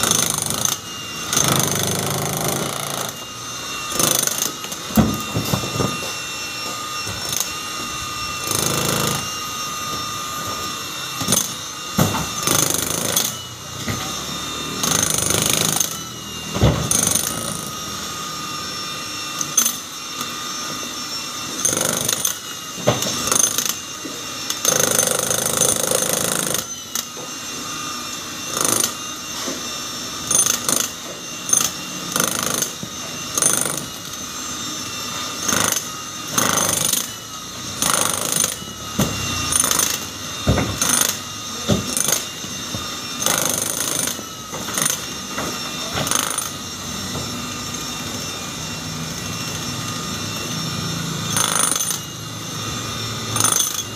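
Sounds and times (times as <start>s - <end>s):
jackhammer chiselling concrete: 0.0s - 3.3s, 3.9s - 5.9s, 8.4s - 9.3s, 11.2s - 13.4s, 14.2s - 16.0s, 16.6s - 17.8s, 21.6s - 23.9s, 24.5s - 27.0s, 28.5s - 29.0s, 30.2s - 34.2s, 35.4s - 42.4s, 43.2s - 46.6s, 51.2s - 52.1s, 53.2s - 53.9s.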